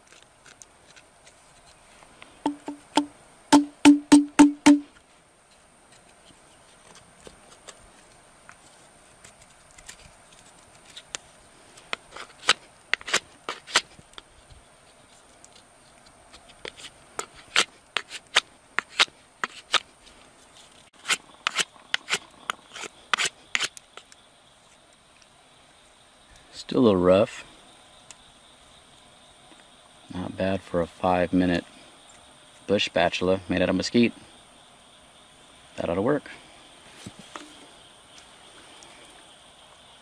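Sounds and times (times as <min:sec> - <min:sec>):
knife shaving wood: 0:00.0 - 0:02.1, 0:05.5 - 0:24.8.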